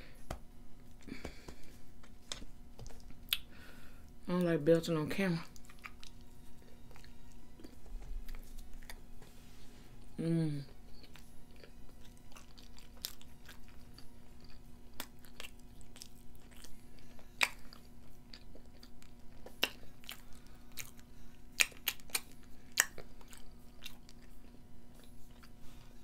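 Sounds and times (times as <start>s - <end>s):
faint steady hum: 0.0s - 26.0s
mouth clicks and smacks: 2.8s - 3.5s
chewing food: 5.4s - 9.1s, 10.9s - 26.0s.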